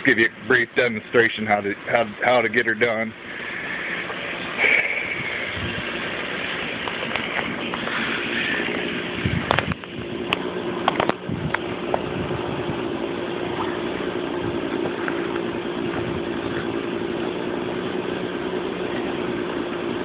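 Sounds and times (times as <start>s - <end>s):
engine idling: 0.0s - 20.0s.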